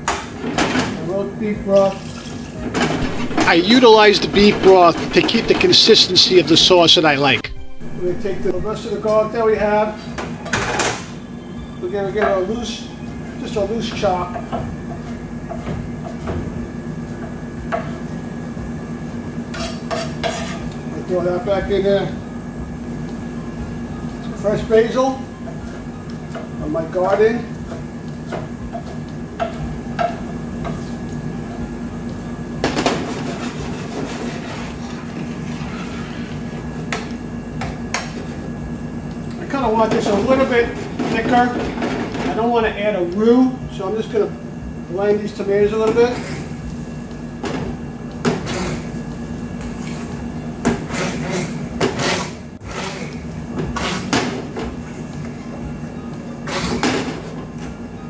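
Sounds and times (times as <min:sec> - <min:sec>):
scrape and clatter into pan: 0:19.6 - 0:20.6, 0:33.0 - 0:35.0.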